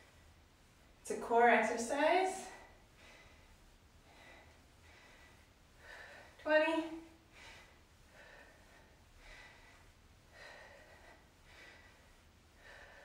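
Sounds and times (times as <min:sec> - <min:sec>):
person breathing heavily: 0:02.5 - 0:06.4, 0:07.1 - 0:13.0.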